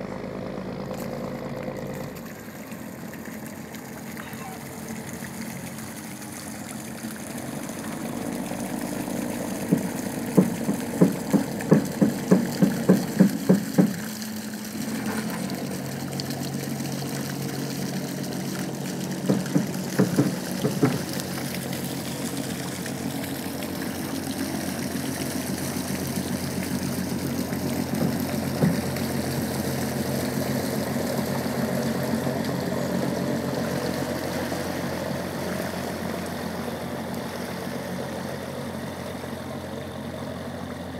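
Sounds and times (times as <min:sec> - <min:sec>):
boat diesel engine running: 0:00.0 - 0:40.9
sharp knocks: 0:09.7 - 0:14.0, 0:19.2 - 0:21.1, 0:28.0 - 0:28.9.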